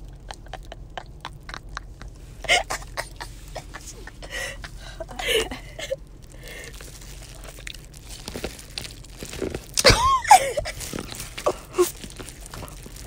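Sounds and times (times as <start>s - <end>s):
lip smacks and chewing clicks: 0.0s - 2.2s
throat noises: 0.0s - 5.8s.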